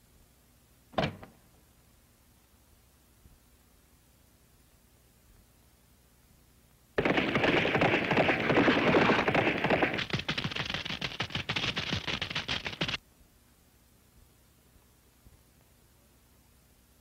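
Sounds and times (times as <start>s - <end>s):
cartoon rapid clicking rattle: 7.0s - 13.0s.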